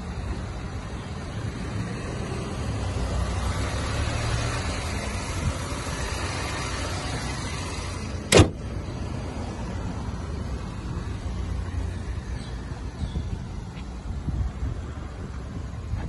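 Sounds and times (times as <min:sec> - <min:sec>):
car engine idling: 0:00.0 - 0:16.0
car bonnet slammed shut: 0:08.2 - 0:08.7.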